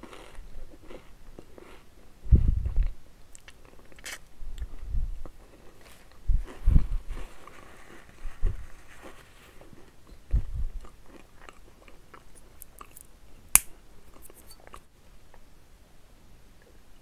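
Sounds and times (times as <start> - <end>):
chewing crunchy snacks: 0.0 - 1.9, 2.6 - 6.6, 8.9 - 13.1.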